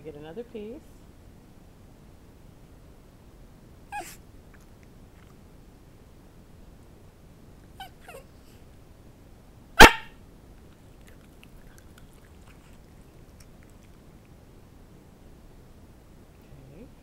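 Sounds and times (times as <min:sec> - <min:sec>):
dog whimpering: 0:03.9 - 0:04.2, 0:07.8 - 0:08.4
dog barking sharply: 0:09.8 - 0:10.2.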